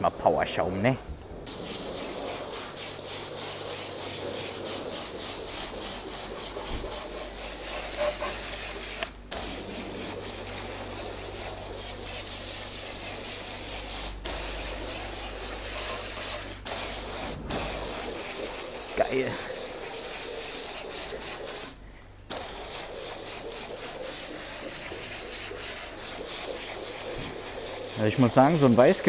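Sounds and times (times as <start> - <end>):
steady low hum: 0.0 - 29.0
pressure lance spraying foam: 1.5 - 29.0.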